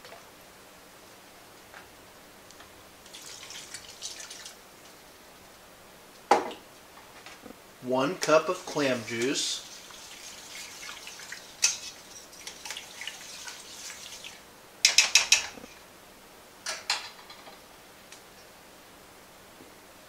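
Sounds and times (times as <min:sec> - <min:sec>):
whisk scraping a metal pot: 0:09.1 - 0:14.3.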